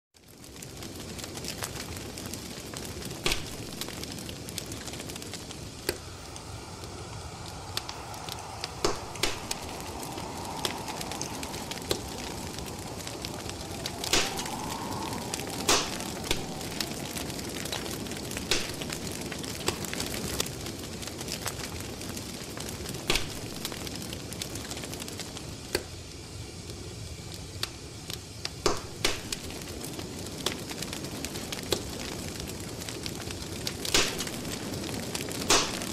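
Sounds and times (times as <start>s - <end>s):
wood fire crackling: 0.2s - 35.9s
faint wavering whistle: 5.8s - 19.1s.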